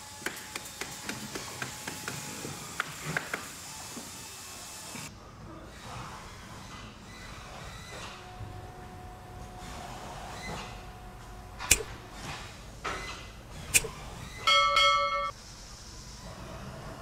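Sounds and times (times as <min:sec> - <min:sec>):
bell-like chime: 0:14.5 - 0:15.3.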